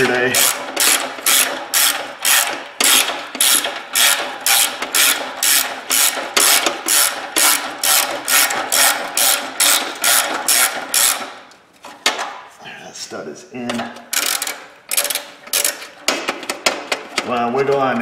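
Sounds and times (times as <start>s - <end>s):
ratchet wrench clicking: 0.4s - 11.2s, 14.1s - 15.9s.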